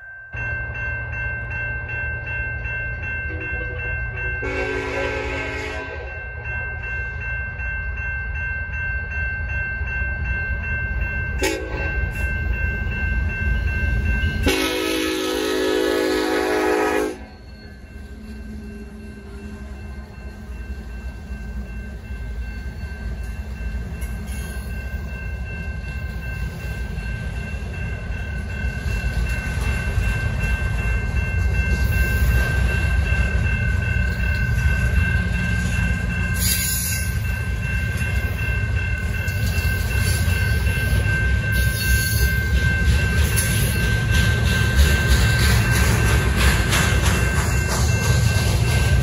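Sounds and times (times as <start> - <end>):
crossing bell ringing: 0.0 - 49.0
train wheels clacking over rails: 23.2 - 49.0.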